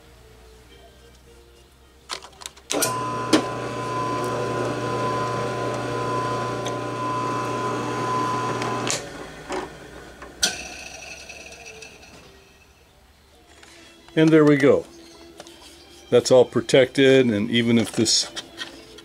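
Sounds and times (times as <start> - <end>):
drill press running: 2.7 - 10.5.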